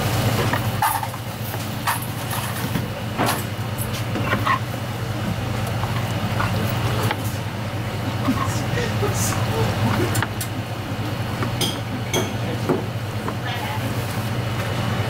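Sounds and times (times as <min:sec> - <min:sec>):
low mechanical hum: 0:00.0 - 0:15.0.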